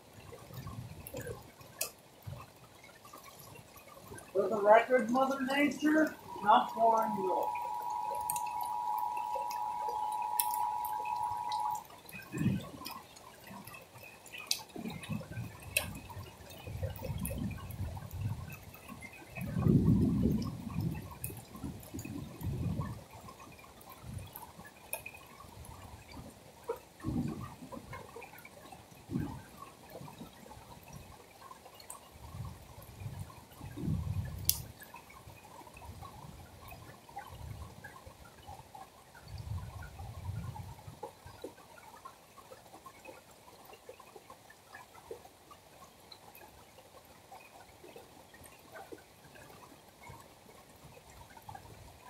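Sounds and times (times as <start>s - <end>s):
rain falling: 0.0s - 52.0s
sharp drips: 0.0s - 52.0s
steady high hum: 4.3s - 13.0s.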